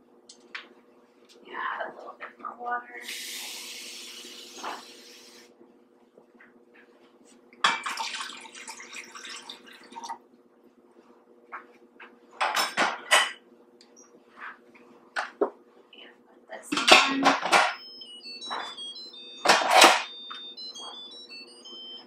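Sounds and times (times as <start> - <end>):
kitchenware clattering and knocking: 12.4 - 13.4, 16.7 - 17.8.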